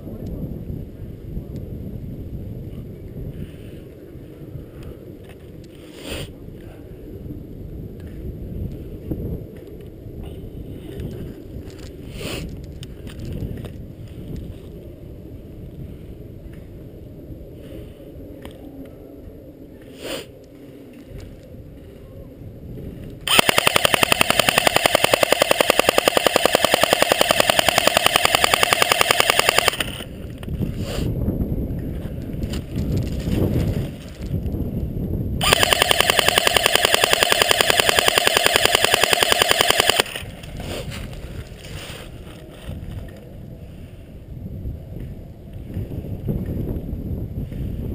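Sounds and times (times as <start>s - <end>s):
wind rumble: 0.0s - 38.8s, 40.0s - 47.9s
airsoft rifle full-auto burst: 23.3s - 30.1s, 35.4s - 40.3s
scattered clicks: 23.3s - 30.5s, 35.4s - 40.6s.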